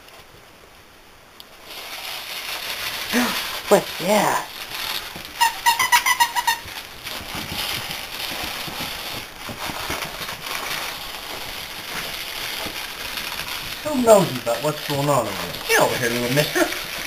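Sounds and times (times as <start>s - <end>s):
puppies rustling on blanket: 1.5s - 17.0s
puppies squeaking: 5.4s - 6.8s.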